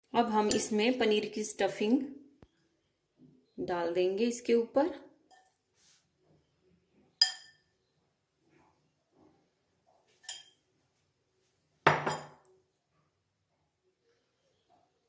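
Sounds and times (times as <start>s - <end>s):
metal spoon clinking glass bowl: 0.4s - 0.8s, 5.3s - 5.6s, 7.2s - 7.7s, 10.2s - 10.6s, 11.9s - 12.4s
bowl clattering onto counter: 11.9s - 12.4s.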